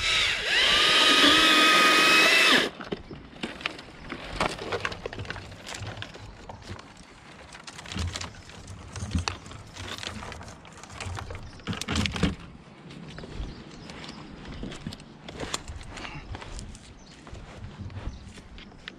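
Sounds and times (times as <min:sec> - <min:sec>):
tree branches rustling and cracking: 0:02.8 - 0:12.5.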